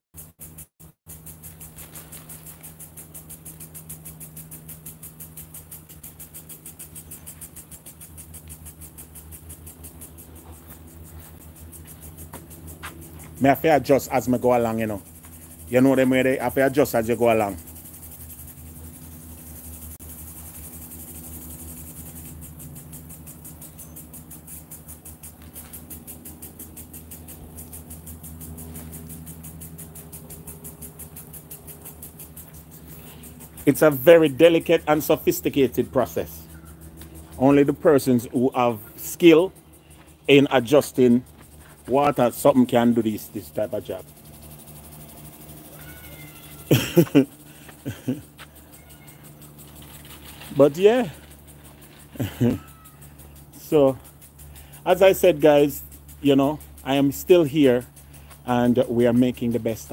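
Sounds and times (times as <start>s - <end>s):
garden sprinkler ticking: 0.0s - 59.9s
high-pitched fast pulsing: 0.0s - 59.9s
steady low hum: 0.2s - 59.9s.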